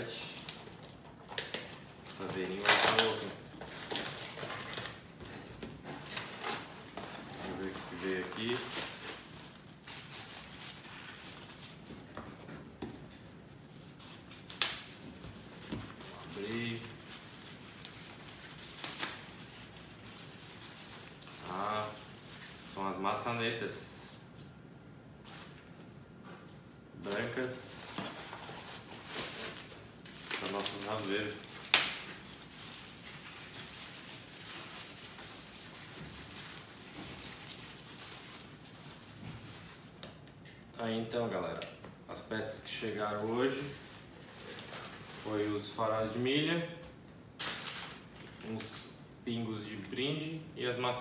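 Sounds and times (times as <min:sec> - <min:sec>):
paper rustling and crinkling: 0:00.0 - 0:23.0, 0:27.0 - 0:40.1, 0:42.6 - 0:46.3, 0:47.4 - 0:49.0.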